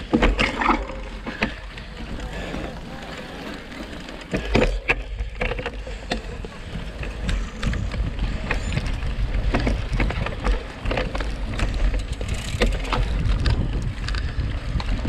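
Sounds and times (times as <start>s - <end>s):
bike clicks and rattles on gravel: 0.0s - 15.0s
wind rumble on microphone: 0.0s - 15.0s.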